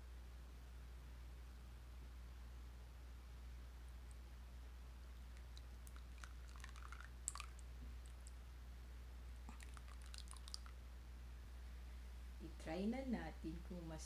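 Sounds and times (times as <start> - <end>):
low steady hum: 0.0 - 14.0
sauce pouring with splats: 5.4 - 8.3, 9.5 - 10.7.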